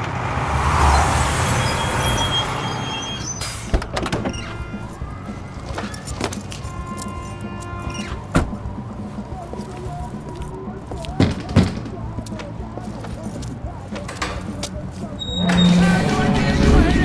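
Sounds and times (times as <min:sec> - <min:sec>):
truck engine rumbling: 0:00.0 - 0:17.0
clunks and clicks from truck doors: 0:03.4 - 0:05.0, 0:05.6 - 0:08.8.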